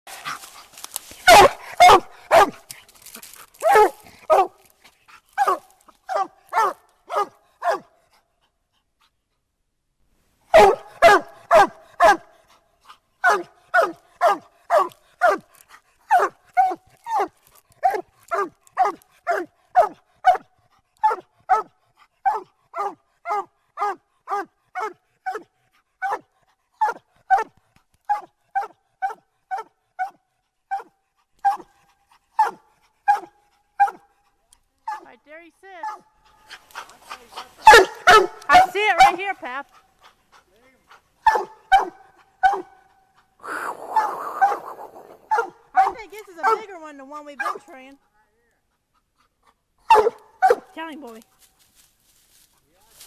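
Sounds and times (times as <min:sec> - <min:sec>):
dog barking: 0:01.2 - 0:02.6, 0:03.6 - 0:04.6, 0:05.4 - 0:08.0, 0:10.5 - 0:12.4, 0:13.2 - 0:15.5, 0:16.1 - 0:27.5, 0:28.1 - 0:31.7, 0:32.4 - 0:34.1, 0:34.8 - 0:35.1, 0:35.8 - 0:39.3, 0:41.2 - 0:42.9, 0:45.3 - 0:46.7, 0:47.4 - 0:47.8, 0:49.9 - 0:50.7.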